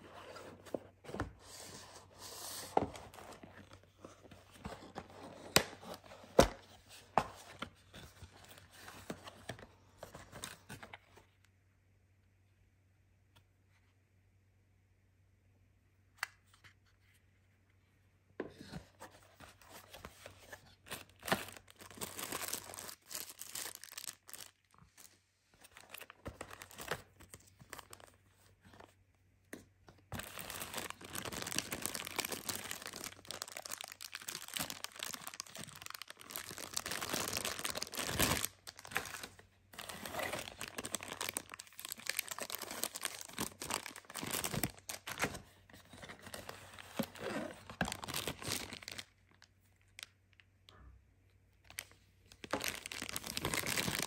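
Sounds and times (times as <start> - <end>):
plastic packaging crinkling: 19.8 - 28.2, 30.1 - 45.4, 46.0 - 50.1, 51.6 - 54.0.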